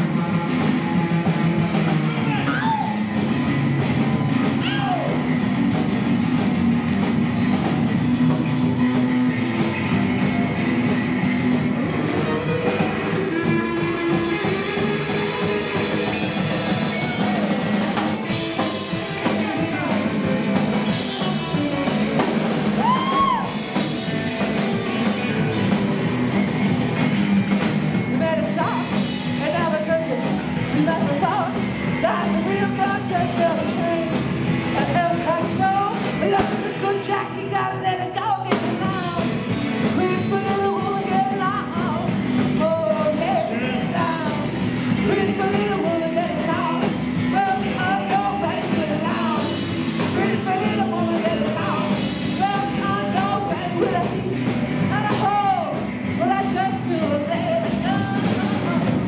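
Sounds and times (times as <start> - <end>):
rock and roll band playing: 0.0 - 59.0
person singing: 11.8 - 23.8, 28.2 - 59.0.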